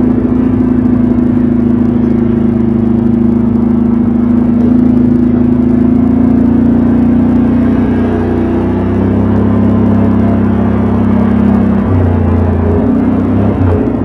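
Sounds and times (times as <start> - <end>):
atv engine running: 0.0 - 14.0.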